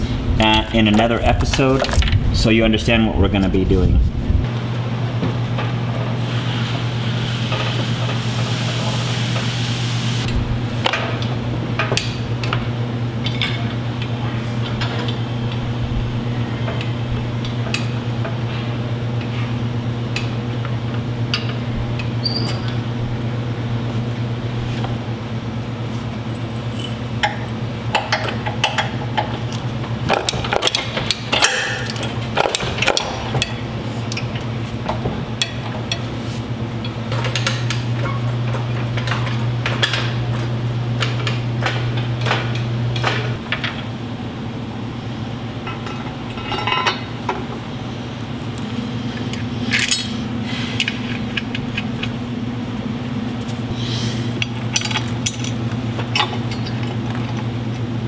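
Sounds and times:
steady low hum: 0.0 - 58.0
metal tools clinking and knocking: 45.6 - 47.1, 54.4 - 57.4.

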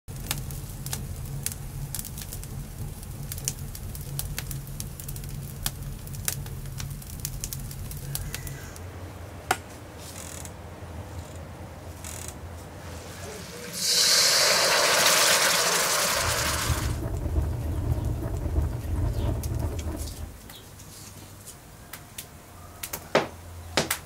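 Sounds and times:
wood fire crackling and popping: 0.1 - 8.8, 13.1 - 20.7
low rumble: 13.0 - 20.7.

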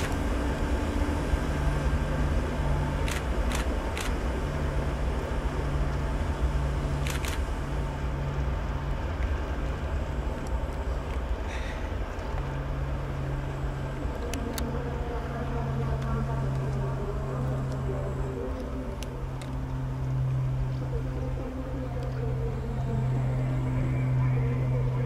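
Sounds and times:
engine running: 0.0 - 25.0
sharp clicks: 7.0 - 7.5.

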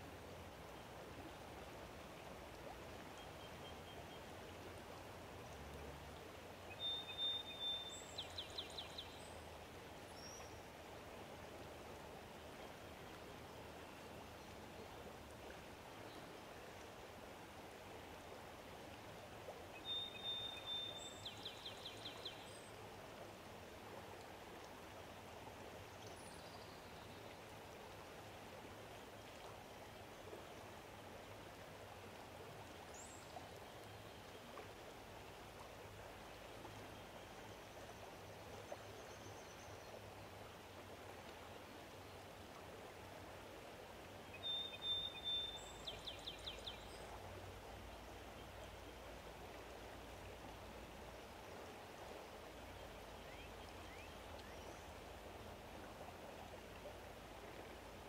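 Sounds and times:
soft rushing water: 0.0 - 58.0
songbird whistle and trill: 6.7 - 9.1, 19.8 - 22.4, 44.3 - 46.8.

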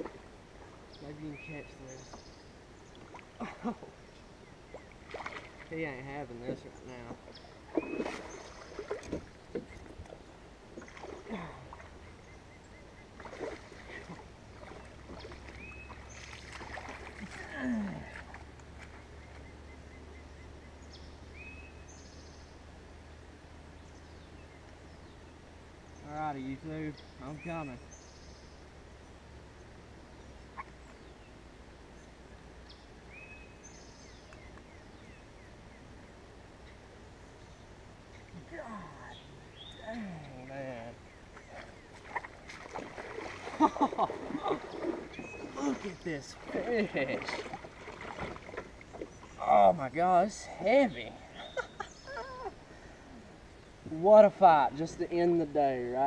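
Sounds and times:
creek murmuring: 0.0 - 56.0
low outdoor rumble: 0.0 - 56.0
splashing in shallow water: 2.9 - 4.0, 4.6 - 6.1, 7.2 - 12.2, 12.8 - 19.7, 38.2 - 49.8
birds whistling and chirping: 7.3 - 10.0, 14.7 - 16.6, 18.9 - 22.6, 26.9 - 28.6, 32.7 - 36.0, 39.0 - 47.5, 51.1 - 53.8.

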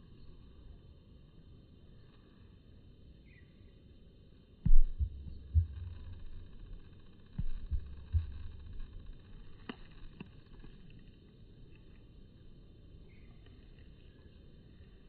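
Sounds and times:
microphone handling thumps: 4.7 - 9.6
low rumble: 4.7 - 10.9.

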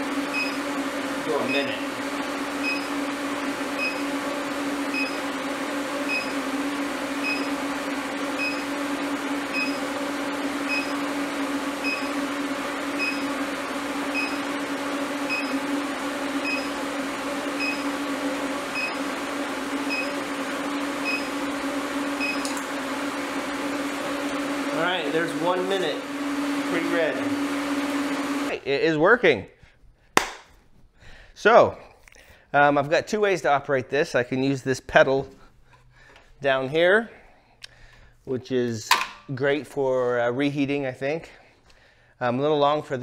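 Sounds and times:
short high beeps: 11.8 - 12.1.

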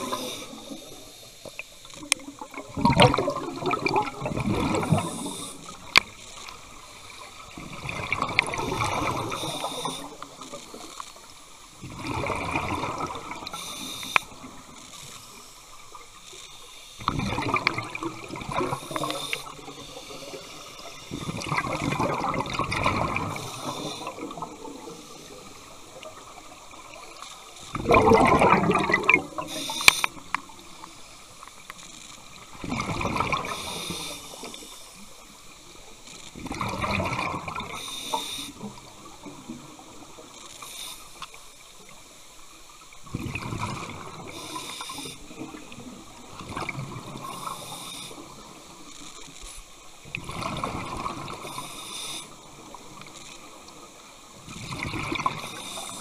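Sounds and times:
exhaled breath bubbling underwater: 2.7 - 6.0, 7.7 - 10.2, 17.0 - 25.4, 27.8 - 30.2.

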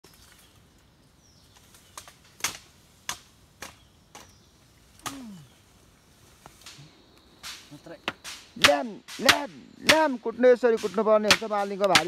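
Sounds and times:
chopping bamboo on wood: 1.9 - 4.3, 7.4 - 10.2, 10.8 - 12.0.

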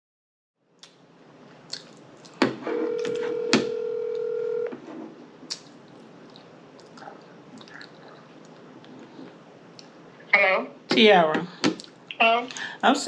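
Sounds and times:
phone ringback tone: 2.7 - 4.7.

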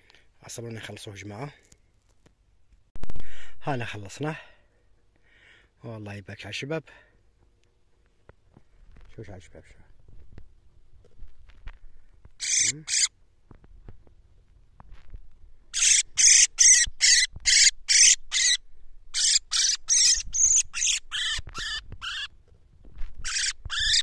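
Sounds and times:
bird screeching distress calls: 12.4 - 13.1, 15.7 - 22.3, 23.2 - 24.0.

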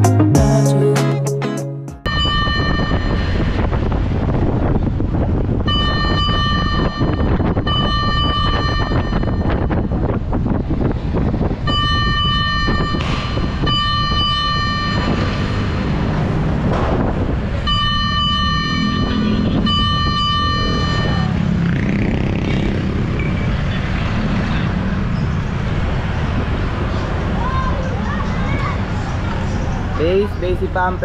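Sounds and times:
vehicle horn blasts: 5.7 - 9.4, 17.7 - 21.3.

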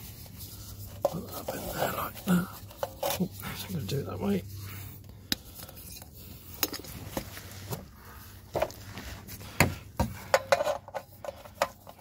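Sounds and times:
metallic clinks and knocks: 10.1 - 12.0.

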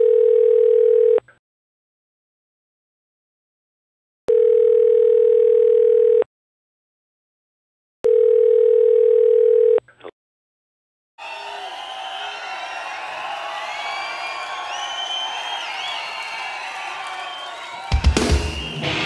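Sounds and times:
crowd noise: 11.2 - 19.0.

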